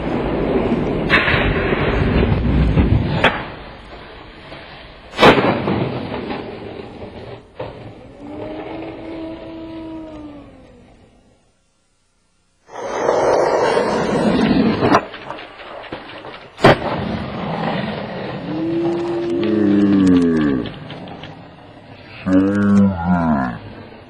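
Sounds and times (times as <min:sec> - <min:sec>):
skateboard cracking on ground: 0:00.0 - 0:08.7, 0:12.7 - 0:22.1
skateboard wheels rolling: 0:00.0 - 0:11.3, 0:12.7 - 0:22.2.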